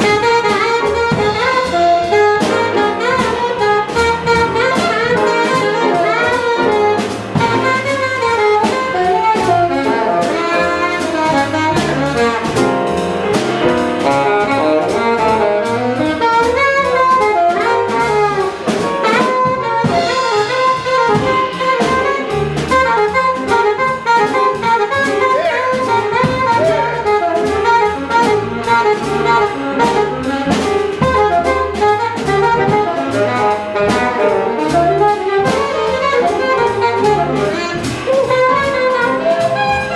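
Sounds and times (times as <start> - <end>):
alto saxophone lead line: 0.0 - 39.9
jazz band playing: 0.0 - 39.9.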